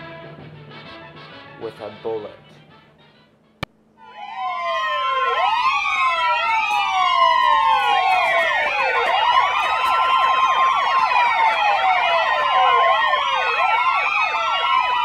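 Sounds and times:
emergency sirens wailing: 4.0 - 15.0.

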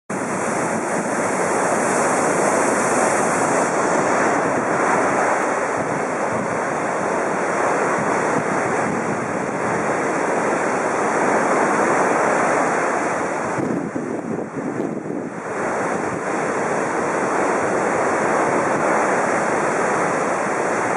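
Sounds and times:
sea surf breaking on beach: 0.1 - 20.9
wind buffeting microphone: 0.1 - 20.9.

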